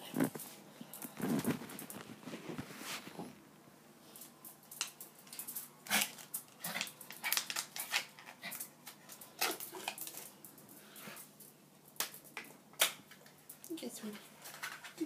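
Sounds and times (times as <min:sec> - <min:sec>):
dog claws clicking on tiles: 0:04.2 - 0:15.0.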